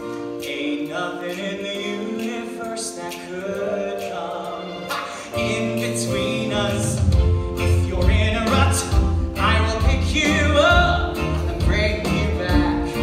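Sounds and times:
instrumental accompaniment: 0:00.0 - 0:13.0
heavy bass line: 0:06.1 - 0:13.0.

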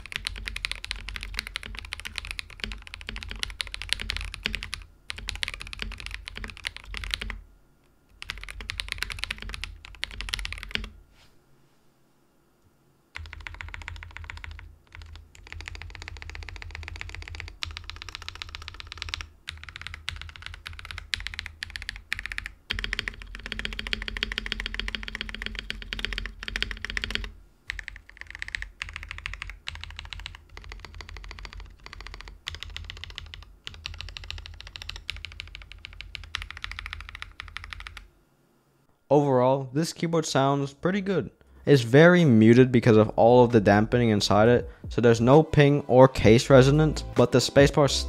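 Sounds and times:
mechanical keyboard typing: 0:00.0 - 0:07.4, 0:08.1 - 0:10.9, 0:13.2 - 0:38.1.

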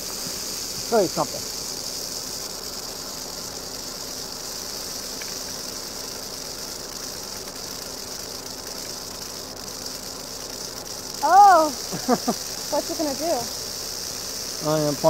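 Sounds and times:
rattlesnake rattling: 0:00.0 - 0:15.0.

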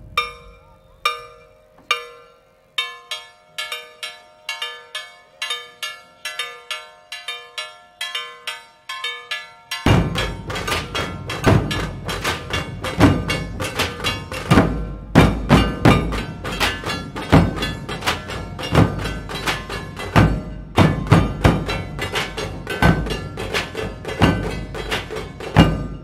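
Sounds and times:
bell-like ringing: 0:00.0 - 0:26.0
barrel drums fast rhythm: 0:09.8 - 0:26.0.

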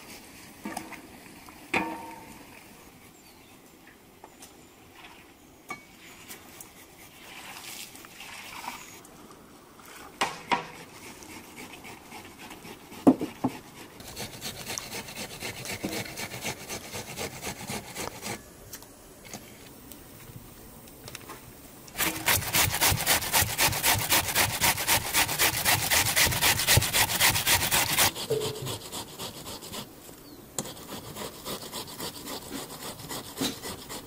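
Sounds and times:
onion scraping on metal grater: 0:22.0 - 0:29.9.

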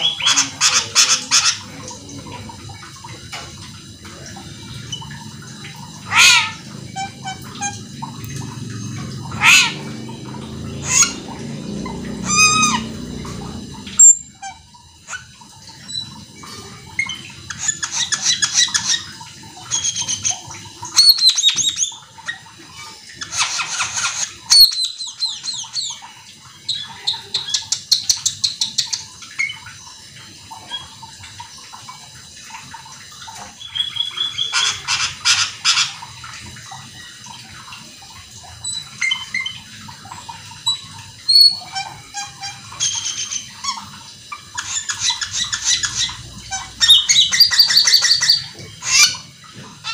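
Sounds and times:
starling singing: 0:00.0 - 0:02.6, 0:04.8 - 0:15.2, 0:33.6 - 0:35.9, 0:44.5 - 0:49.9.

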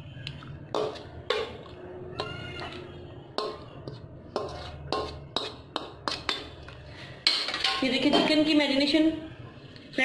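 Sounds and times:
metal spoon scraping steel bowl: 0:00.7 - 0:06.7.

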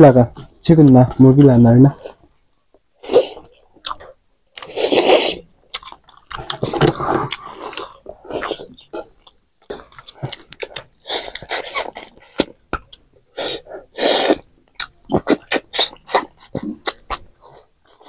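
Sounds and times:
lip smacks and chewing: 0:14.0 - 0:18.0.

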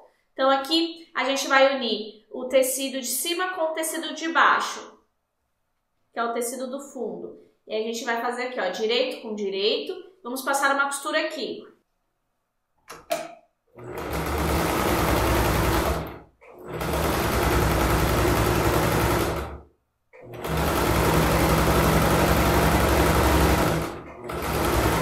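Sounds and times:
sewing machine stitching: 0:13.8 - 0:25.0.

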